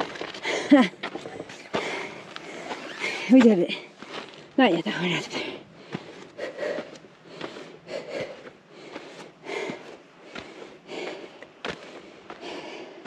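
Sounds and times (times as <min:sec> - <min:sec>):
footsteps on rock and gravel: 0:00.0 - 0:13.0
person breathing hard: 0:01.7 - 0:03.3, 0:05.4 - 0:13.0.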